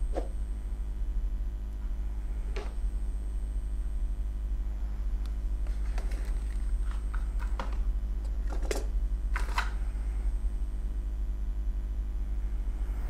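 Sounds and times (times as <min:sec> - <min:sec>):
steady low hum: 0:00.0 - 0:13.0
smartphone clicks and rustles: 0:08.4 - 0:09.8.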